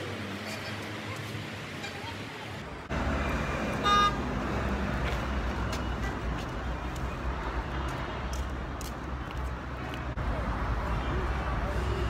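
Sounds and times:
rumble of passing vehicles: 0.0s - 12.0s
vehicle horn toot: 3.8s - 4.2s.

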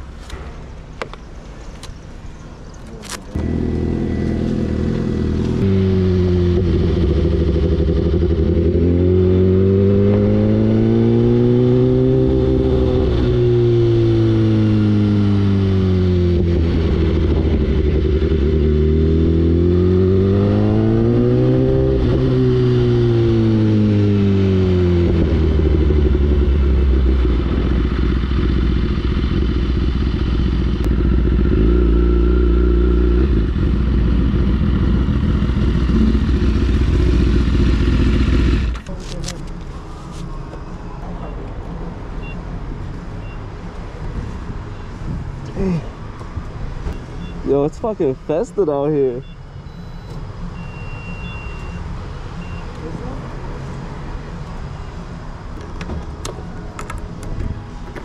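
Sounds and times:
motorcycle engine revving: 3.3s - 39.4s.

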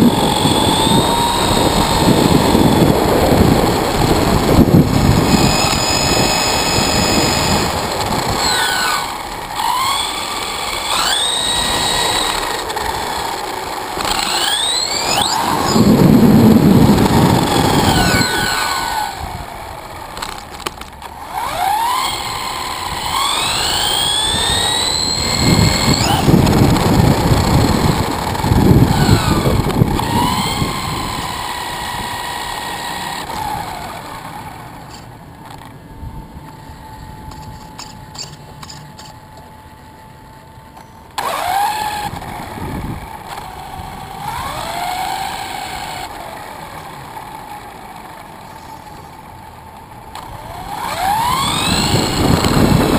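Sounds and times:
tyre and wind rumble: 0.0s - 34.1s, 41.2s - 46.3s, 50.0s - 52.9s
electric motor whining: 0.0s - 52.9s.

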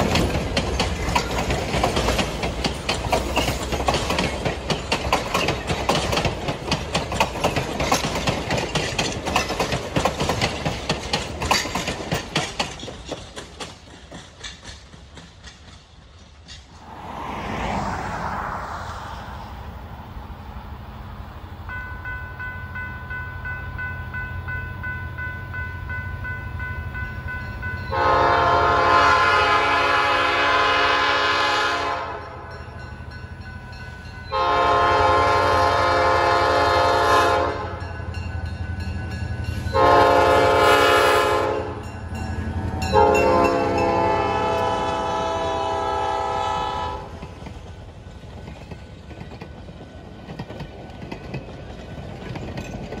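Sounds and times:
diesel locomotive engine rumble: 0.0s - 53.0s
bell-like ringing: 21.7s - 28.2s, 41.8s - 43.9s
locomotive air horn blasts: 27.9s - 32.5s, 34.3s - 37.8s, 39.7s - 41.9s, 42.7s - 47.2s.

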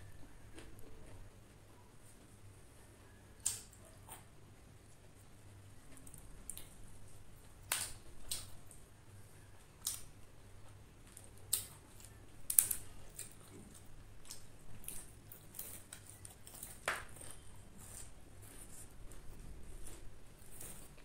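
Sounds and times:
crisp crunches of eating: 9.6s - 21.0s.

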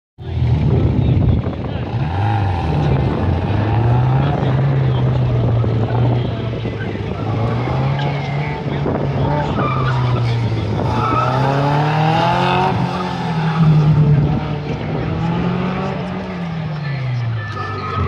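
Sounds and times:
car engine revving: 0.2s - 18.0s
tyres squealing: 9.2s - 14.0s.

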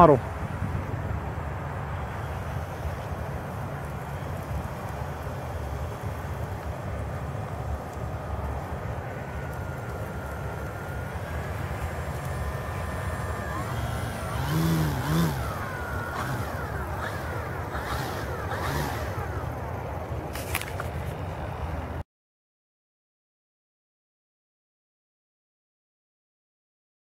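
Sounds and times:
model plane motor whirring: 2.2s - 20.9s.

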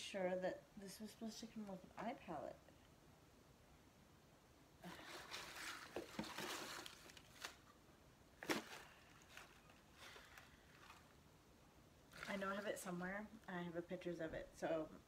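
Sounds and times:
paper packing rustling: 4.8s - 7.8s, 8.4s - 11.2s.

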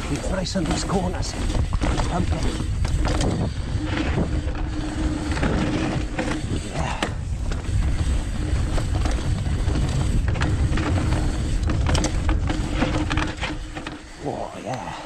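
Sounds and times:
wind rushing over microphone: 0.0s - 14.5s
bike rattles and clicks: 0.0s - 15.0s
tyres rolling on dirt: 0.0s - 15.0s.

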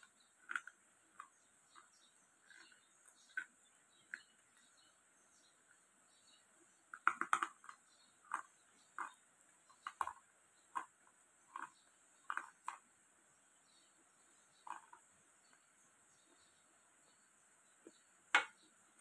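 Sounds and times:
person chewing crunchy lumps: 0.0s - 4.7s, 7.0s - 12.9s.

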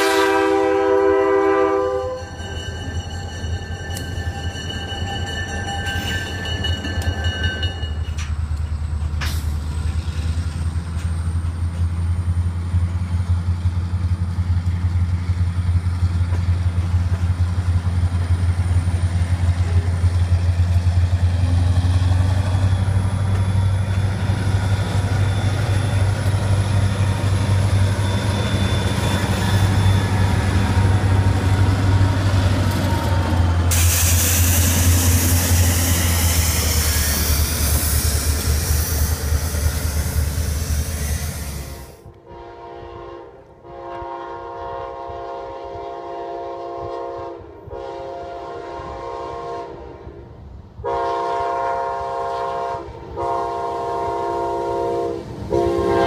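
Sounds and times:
locomotive engine rumble: 0.0s - 42.5s
locomotive passing rush: 0.0s - 42.5s, 49.9s - 56.0s
grade crossing bell ringing: 1.8s - 8.4s.

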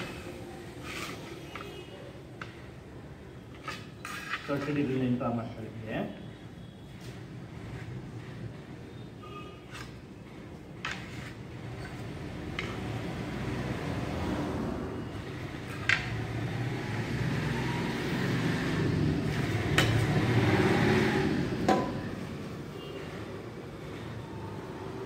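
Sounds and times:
passing vehicle rumble: 11.6s - 22.7s.

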